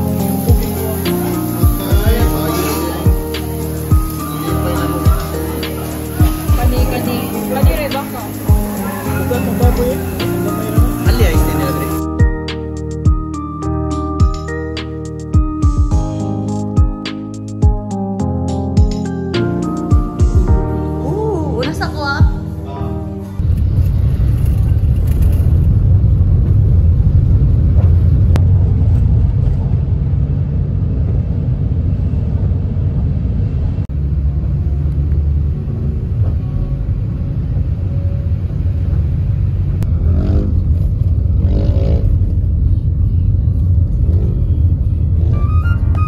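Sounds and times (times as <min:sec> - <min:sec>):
car engine and tyre noise: 0:23.3 - 0:46.0.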